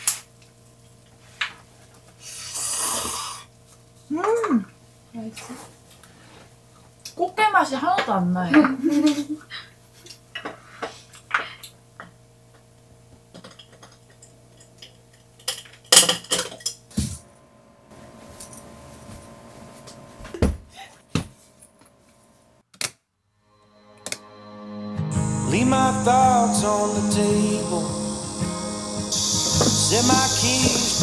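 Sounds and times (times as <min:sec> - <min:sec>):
dishes clattering: 0:13.4 - 0:16.9
utensils clinking against dishes: 0:13.4 - 0:16.9.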